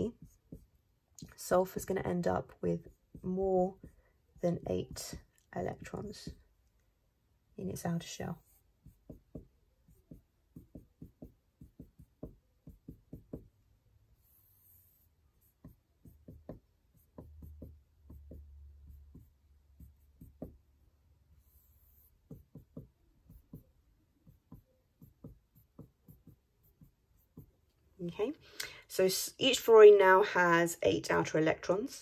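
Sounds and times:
marker pen scratching: 0.0s - 0.8s, 8.2s - 20.7s, 21.3s - 27.7s
marker pen tapping on board: 0.0s - 0.8s, 4.6s - 6.5s, 8.8s - 13.6s, 15.4s - 20.7s, 22.2s - 27.6s.

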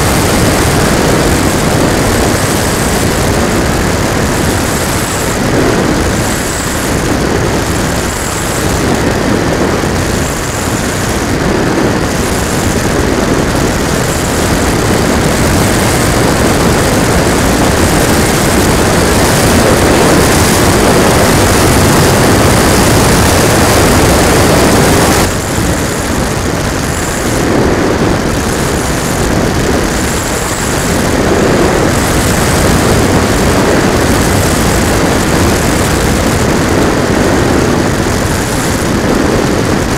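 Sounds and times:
model plane motor and propeller: 0.0s - 39.9s
wind buffeting microphone: 0.0s - 39.9s.

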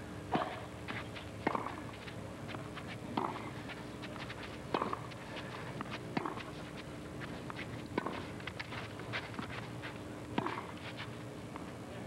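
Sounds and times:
racket hitting tennis ball: 1.4s - 1.8s, 3.1s - 3.6s, 4.7s - 5.2s, 5.8s - 6.6s, 7.9s - 8.6s, 10.3s - 10.8s.

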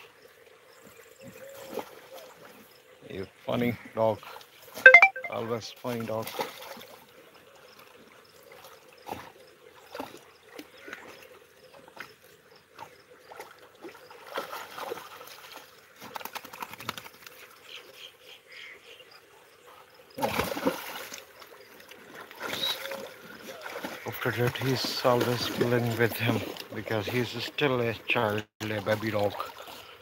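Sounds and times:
dogs splashing in water: 1.3s - 2.8s, 6.0s - 17.6s, 20.2s - 27.4s, 28.6s - 30.0s.

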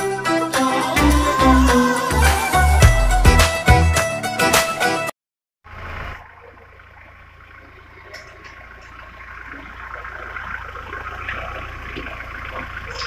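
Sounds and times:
diesel engine running: 5.7s - 13.0s.

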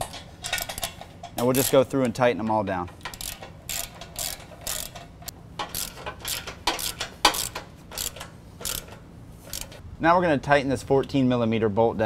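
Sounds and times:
socket ratchet clicking: 0.0s - 2.2s, 3.0s - 9.8s.

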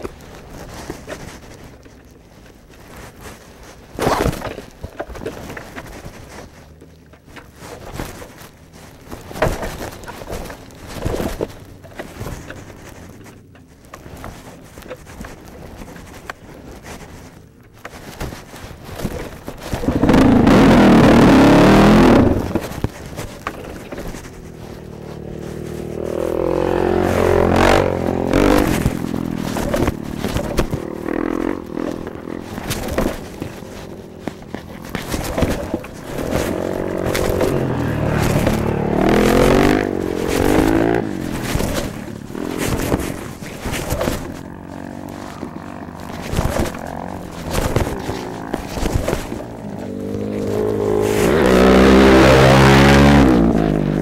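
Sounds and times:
dirt bike engine revving: 19.7s - 22.8s, 24.3s - 54.0s.

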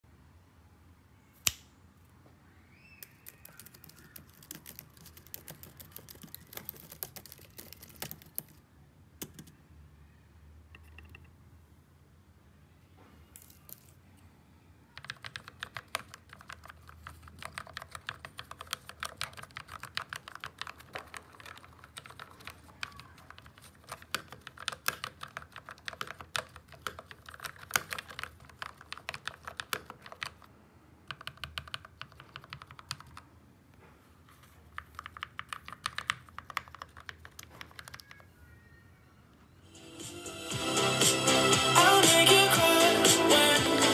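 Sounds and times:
mechanical keyboard typing: 3.0s - 8.6s, 9.2s - 9.6s, 15.0s - 33.3s, 34.7s - 38.2s.

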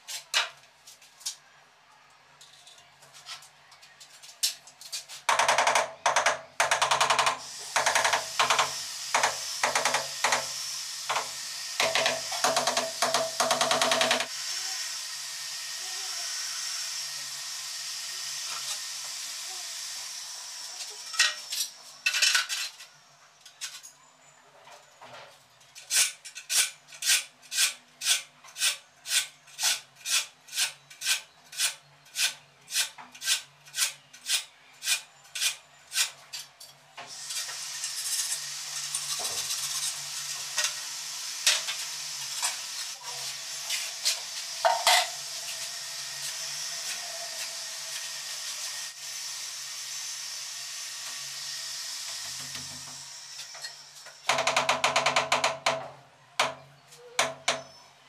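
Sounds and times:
tiles knocking against wall: 54.3s - 56.6s.

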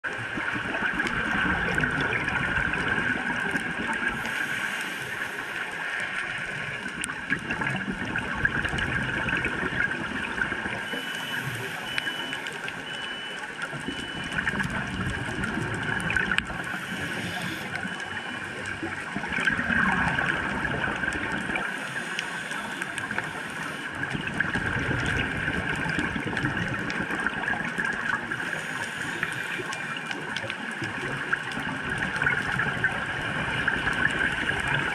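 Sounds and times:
bubbles gurgling: 0.1s - 34.9s
crackle of fine clicks: 0.1s - 34.9s
diver breathing through regulator: 4.2s - 5.6s, 16.6s - 18.0s, 21.6s - 24.0s, 28.4s - 29.8s.

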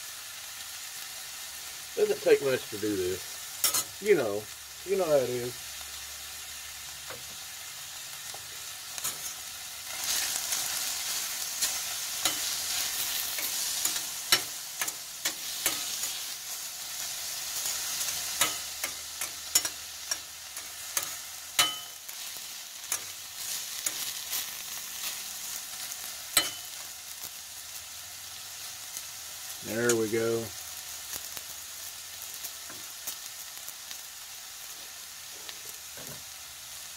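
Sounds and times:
onions and tomatoes sizzling: 0.0s - 36.9s
metal utensil clinking on pan: 3.6s - 3.9s, 11.6s - 12.6s, 13.3s - 16.2s, 18.2s - 22.1s, 26.4s - 26.8s.

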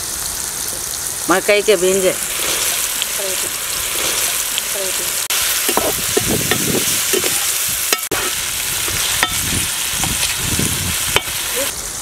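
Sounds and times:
vegetables sizzling in oil: 0.0s - 12.0s
metal ladle scraping pot: 5.6s - 10.2s.

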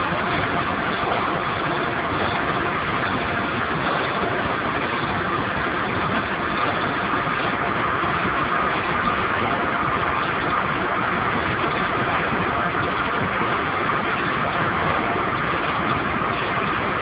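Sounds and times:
boiler machinery running hum: 0.0s - 17.0s.

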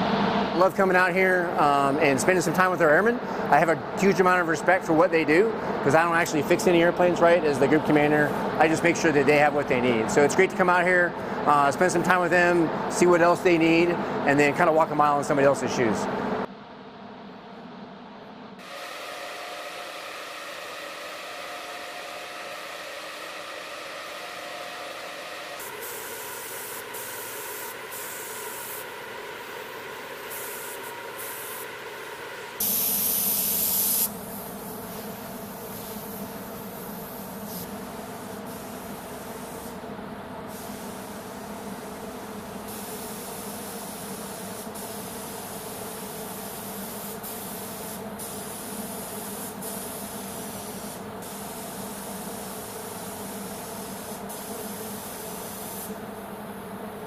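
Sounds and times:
booth fans humming: 0.0s - 32.9s
paint spray gun hissing: 18.6s - 39.8s, 40.5s - 56.6s.

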